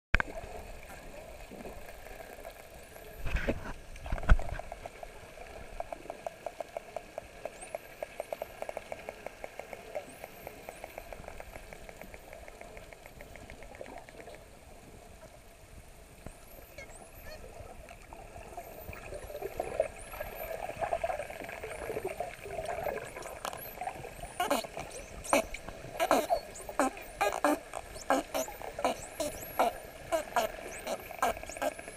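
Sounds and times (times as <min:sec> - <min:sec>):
dolphin clicks: 0:05.8 - 0:14.4, 0:23.4 - 0:31.9
dolphin whistles: 0:23.6 - 0:31.9.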